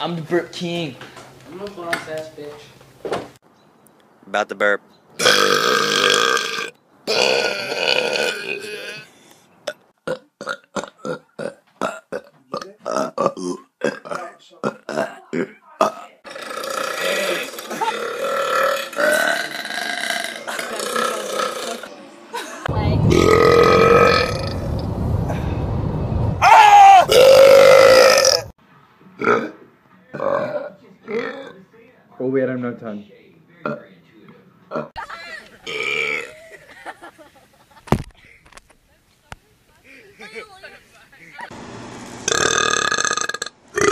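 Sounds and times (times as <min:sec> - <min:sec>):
boy belching: 0:05.2 - 0:09.1, 0:09.7 - 0:21.9, 0:23.1 - 0:24.6, 0:27.1 - 0:28.5, 0:29.2 - 0:31.6, 0:34.7 - 0:35.0, 0:35.7 - 0:36.4, 0:42.3 - 0:43.9.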